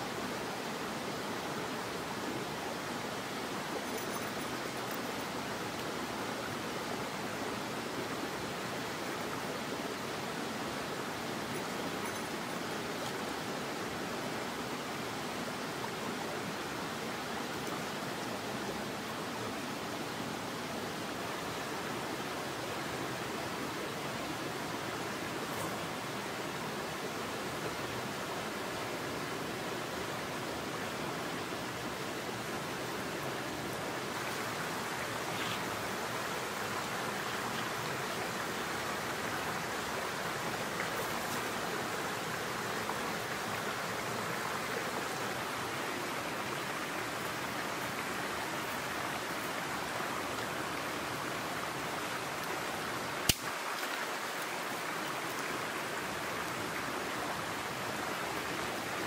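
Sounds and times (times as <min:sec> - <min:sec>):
stream rushing over rocks: 0:00.0 - 0:59.0
sharp click: 0:53.3 - 0:53.5.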